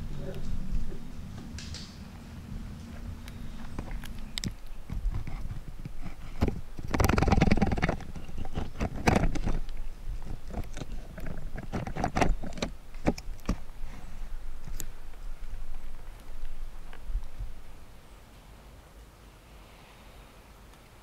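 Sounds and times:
light clicks and knocks: 0:02.8 - 0:14.0.

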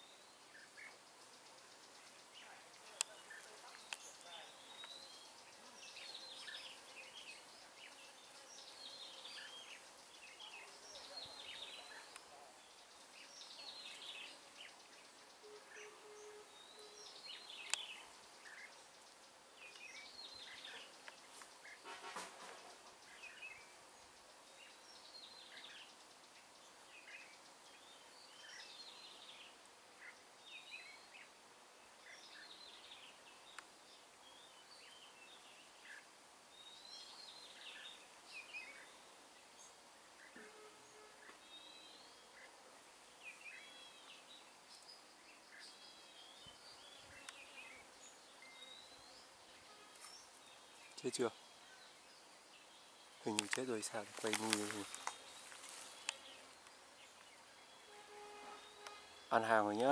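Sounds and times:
bird singing warbled phrases: 0:00.0 - 0:22.0, 0:43.2 - 0:59.9.

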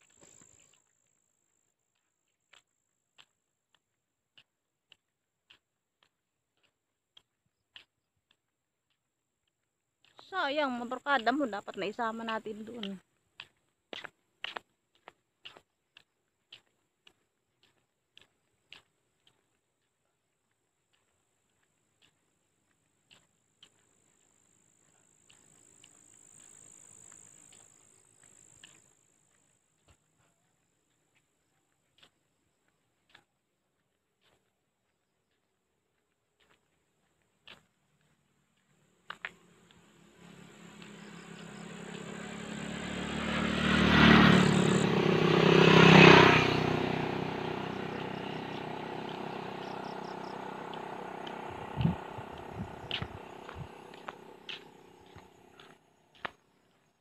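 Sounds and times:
faint footsteps on concrete: 0:00.0 - 0:57.0
high-pitched insect chorus: 0:46.7 - 0:55.6.

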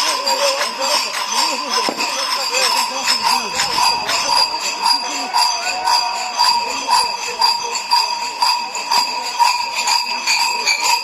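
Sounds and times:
large bells clanging: 0:00.0 - 0:11.0.

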